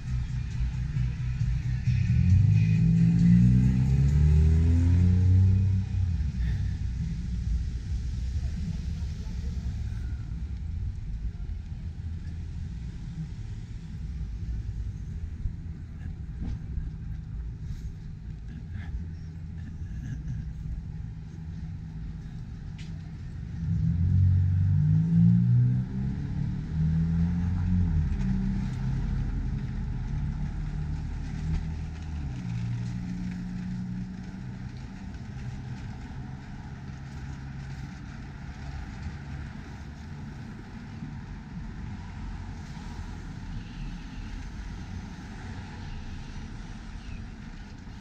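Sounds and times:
car accelerating past: 0.0s - 10.6s, 23.4s - 48.0s
street traffic hum: 0.0s - 48.0s.

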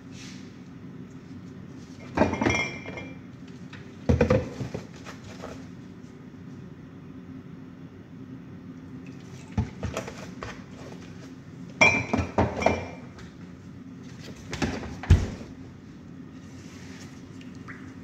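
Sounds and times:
steady low hum: 0.0s - 18.0s
glass bottles clinking: 2.1s - 3.2s, 11.8s - 13.0s.

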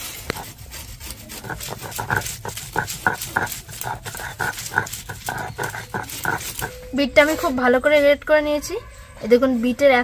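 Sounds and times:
stone grinding on stone: 0.0s - 6.9s.

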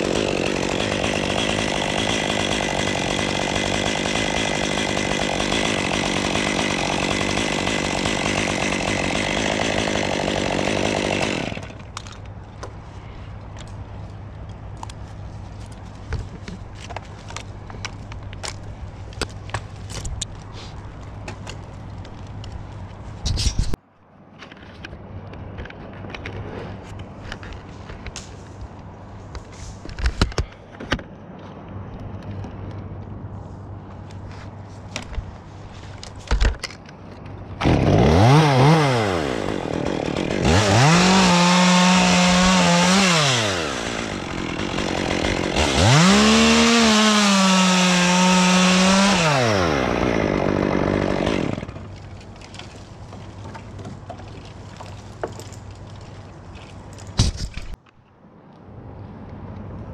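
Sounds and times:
chainsaw idling and revving: 0.0s - 11.8s, 37.6s - 53.4s.

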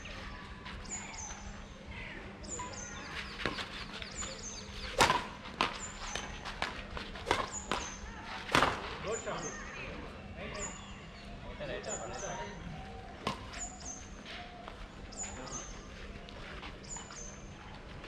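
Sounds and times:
rackets striking shuttlecock: 4.9s - 8.8s.

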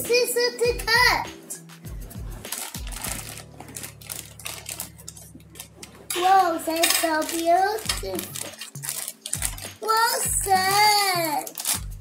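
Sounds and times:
plastic bag crinkling: 2.4s - 12.0s
scissors snipping: 2.5s - 12.0s.

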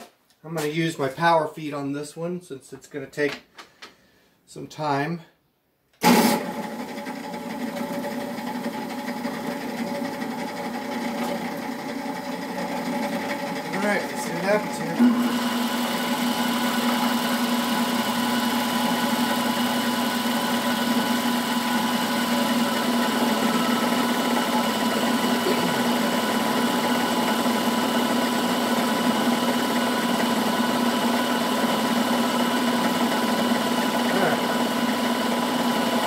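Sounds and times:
milling machine cutting metal: 7.8s - 36.0s.

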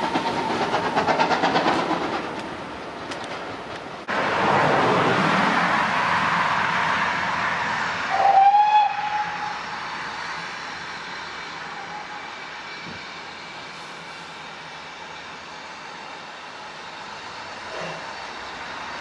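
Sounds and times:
steam locomotive exhaust beats: 0.0s - 2.5s
steady steam hiss: 7.6s - 19.0s
locomotive whistle: 8.1s - 9.7s, 11.6s - 12.3s.

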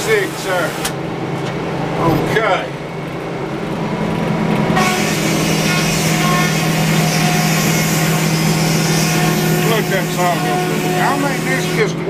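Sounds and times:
sawmill engine humming: 0.0s - 12.0s
saw cutting into log: 4.8s - 12.0s.

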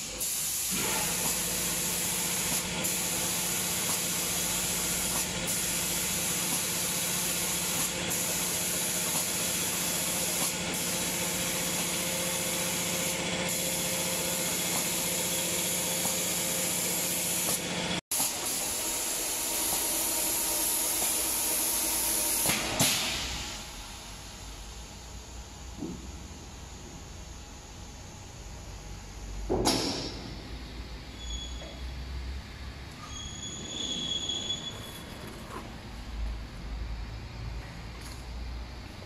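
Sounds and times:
air spray guns hissing: 0.0s - 23.6s.

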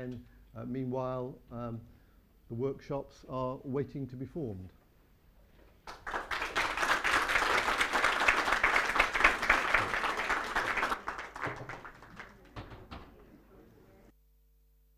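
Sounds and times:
audience applauding: 5.9s - 12.8s.

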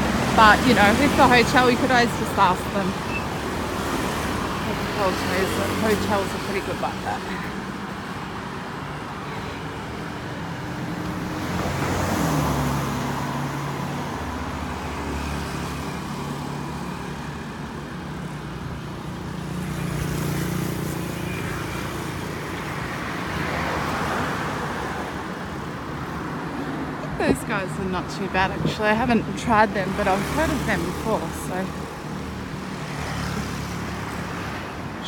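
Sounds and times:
scooters and cars passing: 0.0s - 35.0s.

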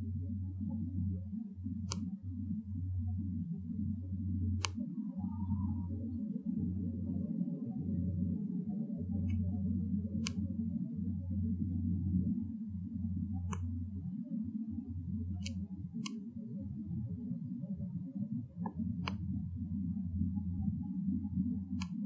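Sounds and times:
steady low rumble: 0.0s - 22.0s
sharp clicks: 21.8s - 22.0s.

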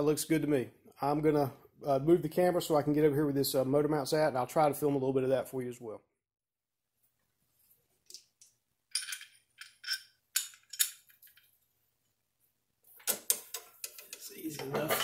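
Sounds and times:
metal hardware clinking: 8.4s - 11.5s.

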